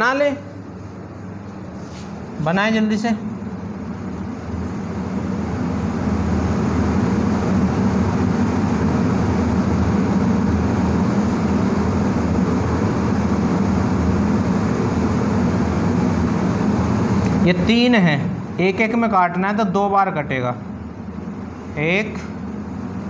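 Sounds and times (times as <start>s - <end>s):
low mechanical rumble: 0.0s - 23.0s.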